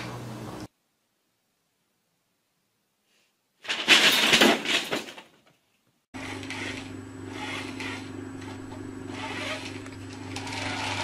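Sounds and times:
paper bag crinkling crash: 3.6s - 5.4s
steady low hum: 6.2s - 11.0s.

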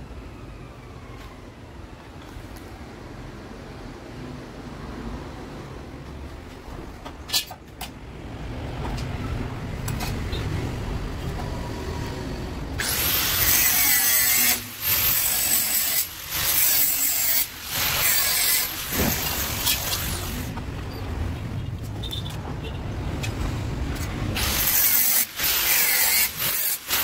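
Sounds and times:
angle grinder cutting metal: 12.8s - 20.5s, 24.4s - 27.0s.

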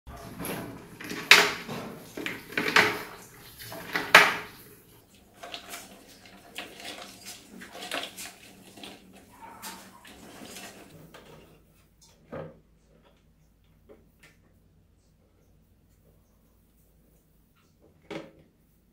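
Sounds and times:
mice scrabbling on plastic: 0.1s - 4.7s.

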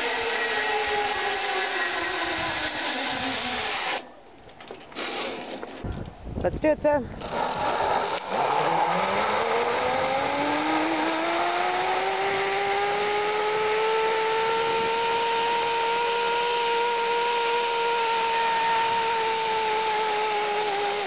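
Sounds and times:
pulley wheels whining on cable: 0.0s - 6.1s, 7.2s - 21.0s.

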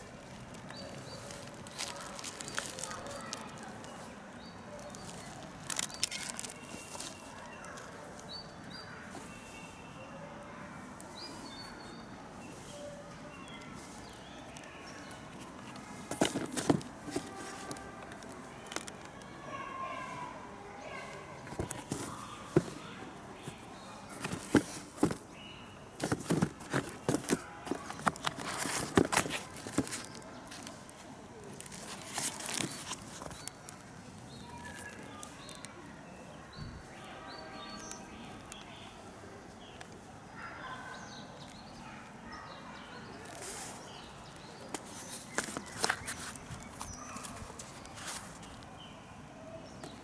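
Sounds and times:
handling clicks and knocks: 14.5s - 19.3s, 21.4s - 30.8s, 31.5s - 35.6s, 44.5s - 48.6s
sneaker clicking on cardboard box: 24.2s - 25.3s, 26.0s - 30.2s.

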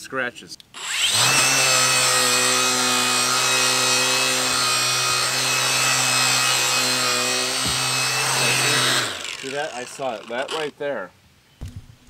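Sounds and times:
angle grinder whining: 0.8s - 10.8s
polishing pad rubbing hull: 6.3s - 10.7s.

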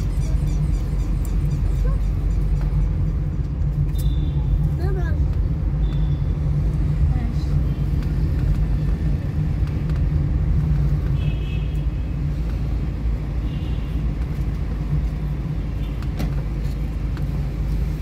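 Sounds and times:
low rumble of car traffic: 0.0s - 18.0s.

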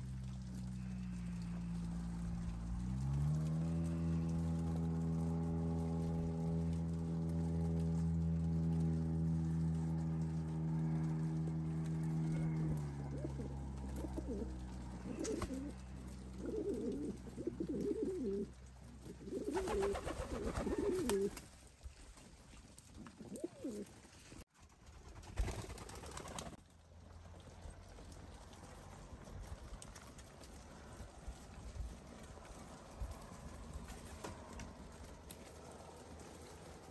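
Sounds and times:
steady low hum: 0.0s - 21.5s
pigeons cooing: 8.2s - 21.4s, 22.9s - 24.0s.

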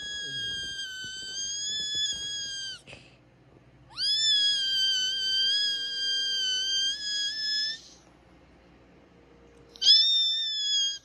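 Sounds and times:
person squealing high-pitched: 0.0s - 2.8s, 4.0s - 7.9s.

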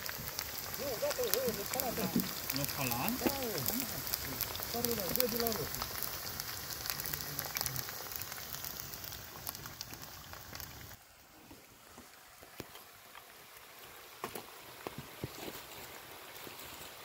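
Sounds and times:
oil popping: 0.0s - 11.0s
potatoes sizzling in hot oil: 0.0s - 11.0s, 11.6s - 17.0s.

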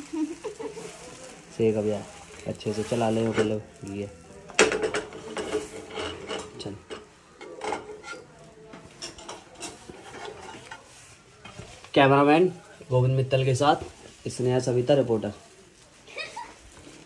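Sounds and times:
metal spatula scraping frying pan: 2.6s - 3.8s, 4.7s - 11.6s.

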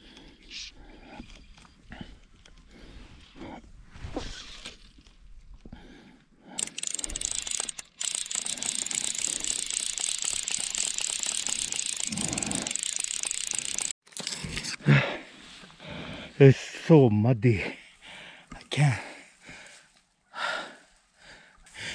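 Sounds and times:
fly reel ratcheting: 6.6s - 14.5s.

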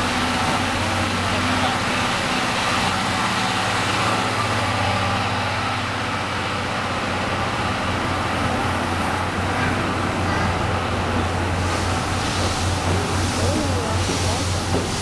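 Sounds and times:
train wheels rumbling: 0.0s - 15.0s.

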